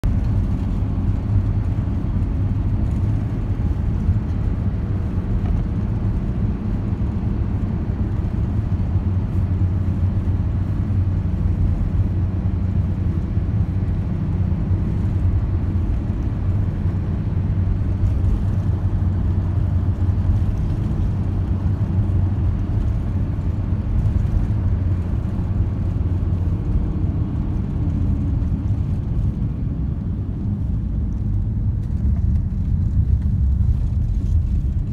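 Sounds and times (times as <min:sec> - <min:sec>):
vehicle engine and tyre noise: 0:00.0 - 0:34.9.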